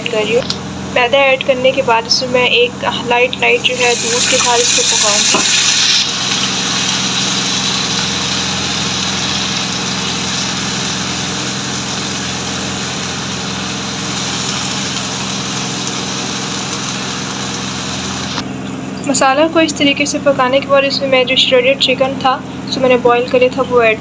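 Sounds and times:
low mechanical hum: 0:00.0 - 0:24.0
food sizzling in a frying pan: 0:03.6 - 0:18.4.

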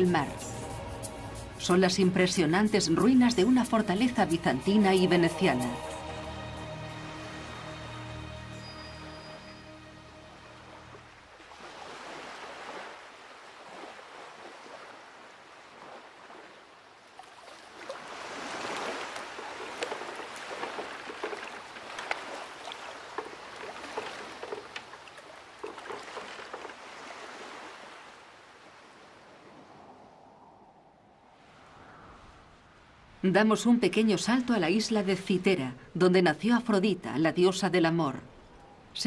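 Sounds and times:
sea water washing and splashing: 0:10.5 - 0:30.2
small splashes and clicks: 0:17.0 - 0:27.0.

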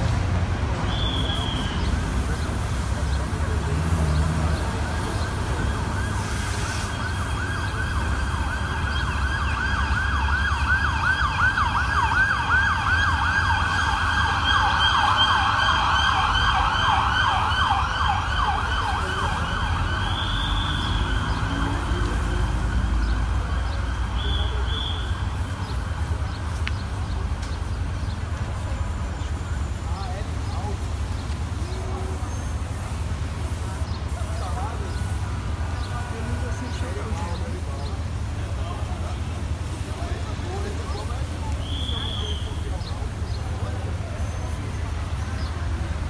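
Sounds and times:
low traffic rumble: 0:00.0 - 0:46.0
siren yelping: 0:07.0 - 0:22.0.

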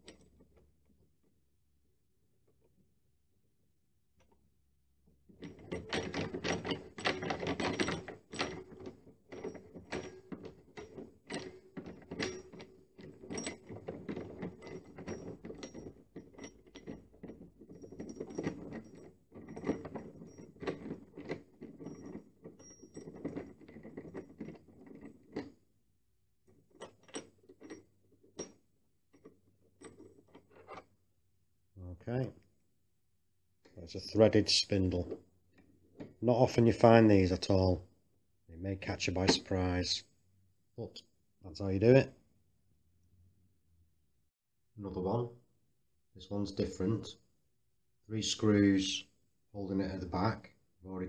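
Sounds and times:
glass door knob clicking and rattling: 0:05.4 - 0:25.5.

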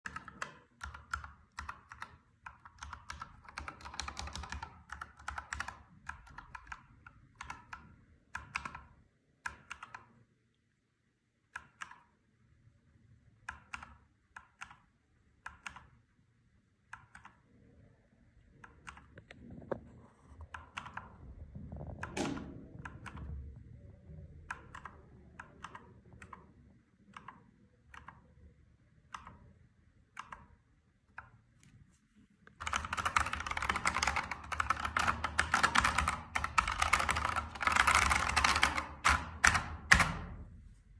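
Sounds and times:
mechanical keyboard keys clacking: 0:00.0 - 0:10.0, 0:20.4 - 0:21.2, 0:22.0 - 0:23.6, 0:24.4 - 0:28.5, 0:32.6 - 0:40.3.

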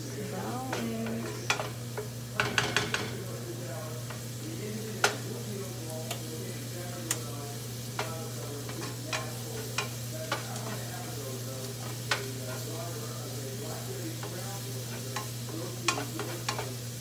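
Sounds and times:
steady low hum: 0:00.0 - 0:02.4
garlic sizzling in butter: 0:00.0 - 0:17.0
utensil clicking against pan: 0:00.7 - 0:03.2, 0:05.0 - 0:05.3, 0:06.0 - 0:06.3, 0:07.0 - 0:12.7, 0:14.1 - 0:16.8.

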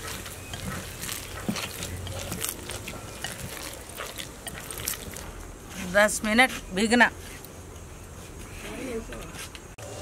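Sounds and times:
hand squishing batter in bowl: 0:00.0 - 0:07.0.

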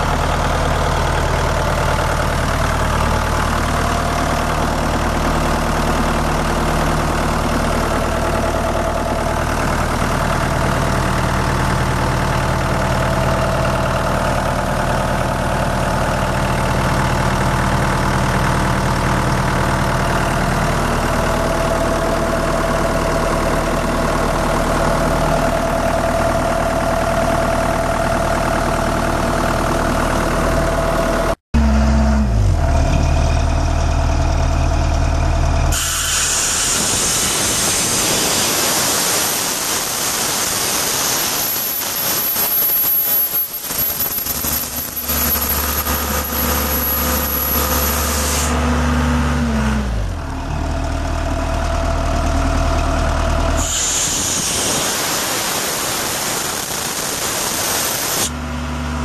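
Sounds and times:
diesel engine running: 0:00.0 - 0:59.0
loud compressed air hissing: 0:35.7 - 0:44.5, 0:45.6 - 0:48.6, 0:53.6 - 0:58.3.

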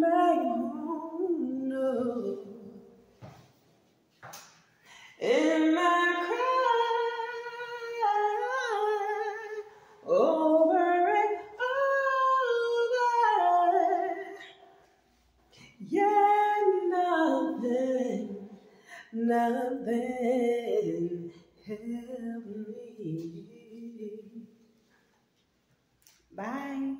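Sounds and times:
woman singing a cappella: 0:00.0 - 0:03.0, 0:05.0 - 0:14.8, 0:15.5 - 0:24.5, 0:26.3 - 0:26.9
short breaths: 0:04.7 - 0:05.2.

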